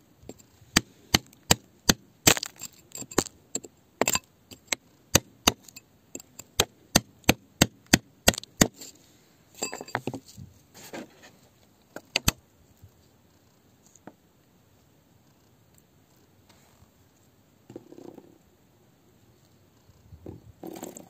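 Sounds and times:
rod tapping on rock: 1.9s - 6.7s.

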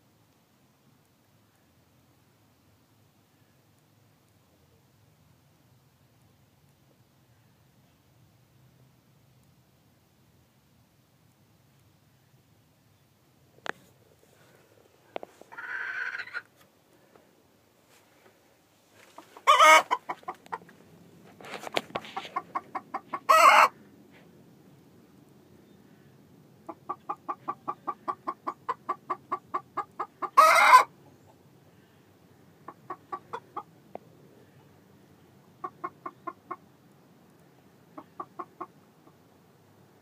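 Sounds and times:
hen clucking: 15.1s - 16.6s, 19.0s - 20.8s, 21.6s - 23.8s, 26.6s - 31.4s, 32.6s - 33.8s, 35.4s - 36.7s, 37.9s - 39.2s
hen squawking: 15.5s - 16.5s, 22.4s - 23.7s.

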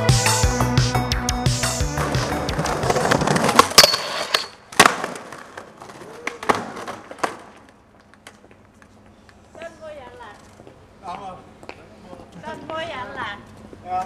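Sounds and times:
skateboard wheels rolling on pavement: 1.7s - 14.0s
skateboard clacking on ground: 2.4s - 9.7s.

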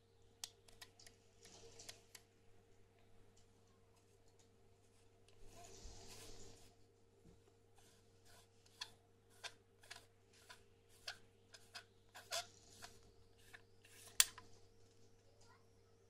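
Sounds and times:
scratchy lens ring scrapes: 5.4s - 6.7s, 7.8s - 14.4s.

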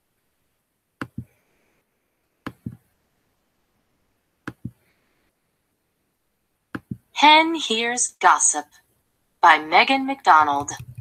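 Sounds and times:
computer mouse clicking: 1.0s - 1.3s, 2.4s - 2.9s, 4.4s - 4.8s, 6.7s - 7.1s, 10.6s - 11.0s.

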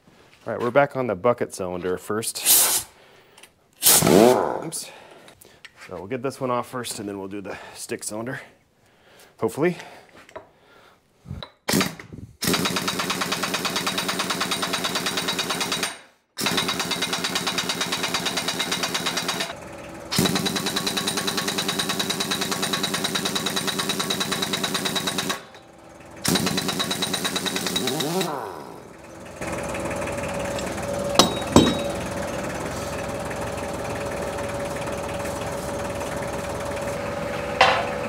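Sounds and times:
pneumatic impact wrench hammering: 3.8s - 4.4s, 11.4s - 33.2s, 37.6s - 37.9s.

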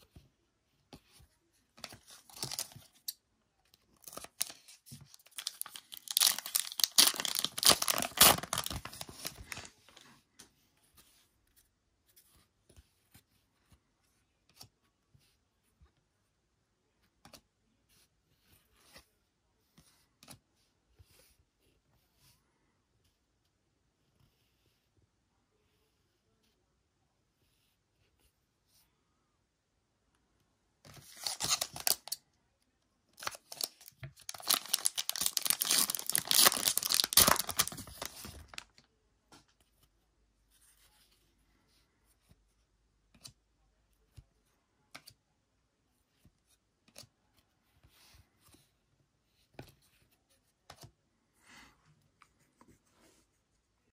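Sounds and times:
foil wrapper tearing and crinkling: 5.2s - 9.7s, 31.2s - 32.1s, 33.2s - 38.7s.

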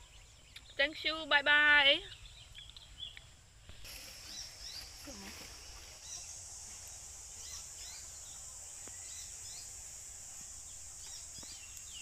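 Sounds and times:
bird chirps: 2.0s - 3.4s, 7.3s - 9.8s
high-pitched insect drone: 3.9s - 12.0s.

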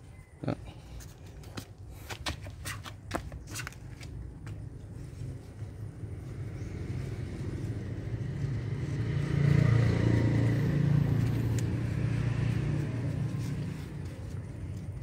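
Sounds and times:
vehicle engine passing by: 4.9s - 15.0s.

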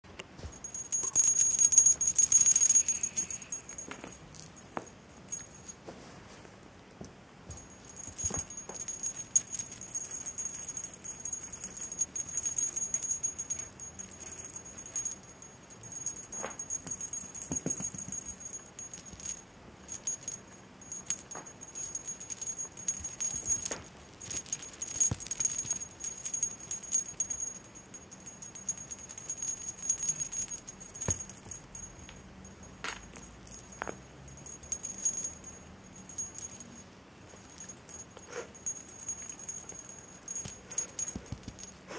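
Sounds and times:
toy balls rattling and jingling: 0.4s - 5.8s, 7.5s - 41.9s
thin high tone: 0.6s - 4.5s.

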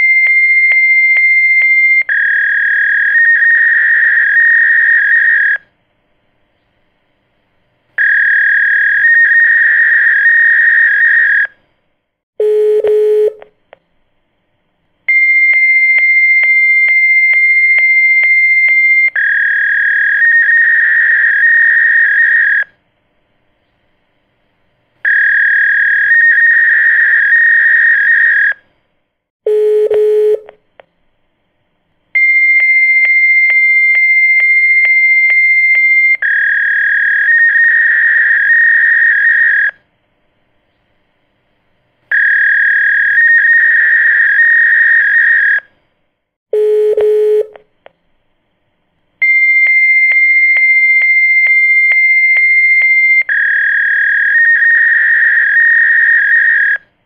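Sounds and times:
lower telephone tone: 0.0s - 5.7s, 12.4s - 13.5s, 15.1s - 22.7s, 29.5s - 30.6s, 32.2s - 39.8s, 46.6s - 47.6s, 49.2s - 56.9s
high-pitched telephone beeps: 29.5s - 30.5s, 32.2s - 39.8s, 46.6s - 47.6s, 49.2s - 56.8s.

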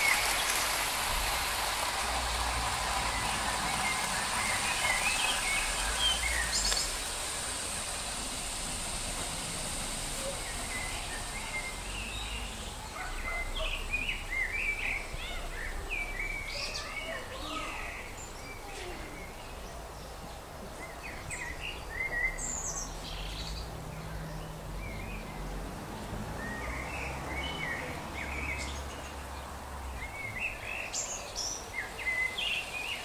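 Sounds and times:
birds chirping: 0.0s - 33.0s
steady hiss: 0.0s - 33.0s.

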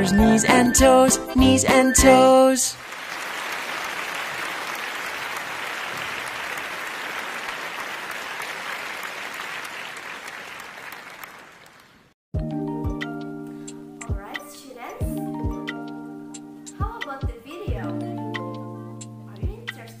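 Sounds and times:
audience applauding: 2.8s - 12.1s.

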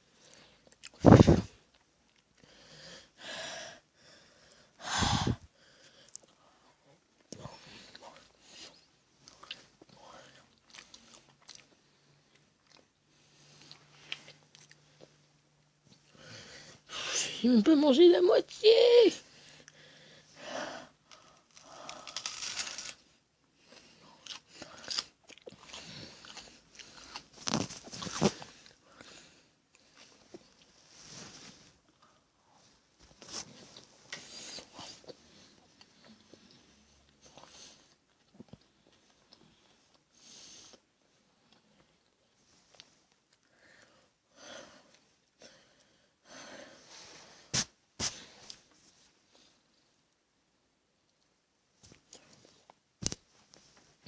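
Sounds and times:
boy exhaling hard through mouth: 4.8s - 5.5s
crunchy chewing of raw onion: 23.7s - 28.7s.

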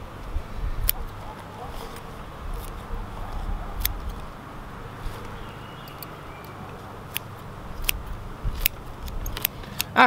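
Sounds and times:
wind rumble on microphone: 0.0s - 6.0s, 7.5s - 9.5s
pruning scissors snipping: 0.8s - 4.4s, 5.0s - 10.0s.

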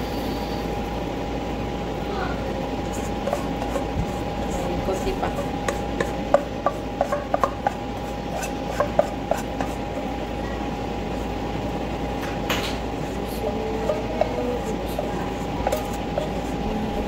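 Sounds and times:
steady hum: 0.0s - 17.0s
utensil tapping cookware: 3.2s - 10.1s, 12.2s - 17.0s.

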